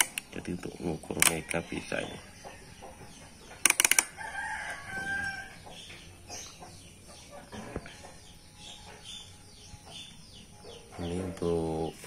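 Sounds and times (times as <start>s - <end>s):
rotary selector clicking: 0.0s - 1.7s, 3.6s - 4.2s.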